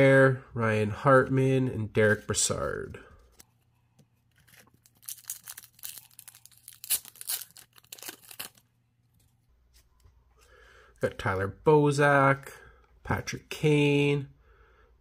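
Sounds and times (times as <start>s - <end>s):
foil wrapper tearing and crinkling: 4.4s - 8.7s.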